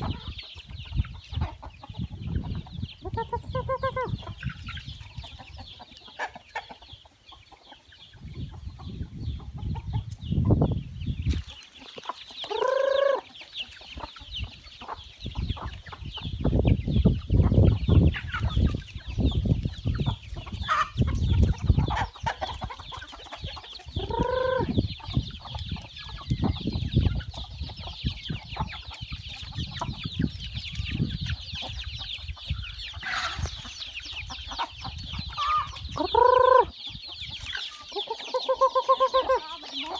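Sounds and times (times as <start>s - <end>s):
chickens clucking: 0.0s - 39.9s
chicken squawks: 12.4s - 13.4s, 32.9s - 33.8s, 34.4s - 36.7s, 37.4s - 39.9s.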